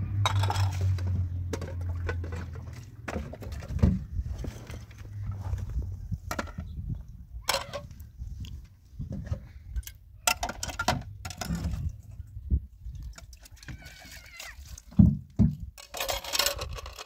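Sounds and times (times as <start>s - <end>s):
plastic dishes clattering in metal basin: 0.1s - 4.9s, 6.2s - 6.8s, 10.3s - 11.9s, 14.9s - 17.0s.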